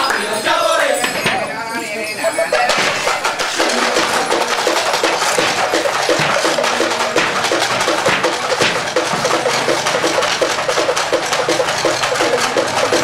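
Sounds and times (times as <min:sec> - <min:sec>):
male chorus chanting rhythmically: 0:00.0 - 0:01.5.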